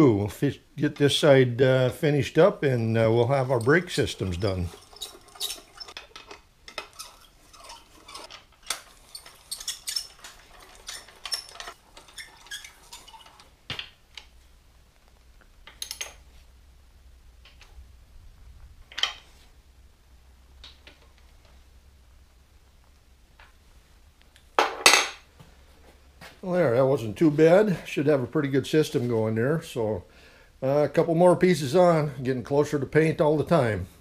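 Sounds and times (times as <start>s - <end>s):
wrench clinking on bolts: 3.6s - 13.4s.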